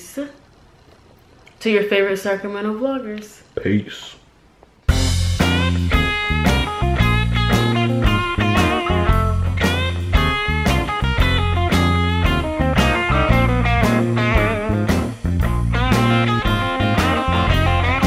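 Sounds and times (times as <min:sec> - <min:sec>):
instrumental music with plucked guitar: 0:04.9 - 0:18.0.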